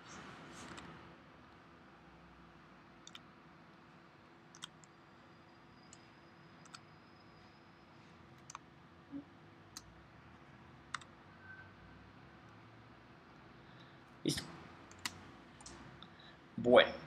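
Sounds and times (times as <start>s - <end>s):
computer mouse clicks: 0.6s - 0.9s, 3.0s - 3.3s, 4.5s - 4.9s, 6.6s - 6.9s, 8.4s - 8.7s, 10.9s - 11.1s, 14.9s - 15.8s.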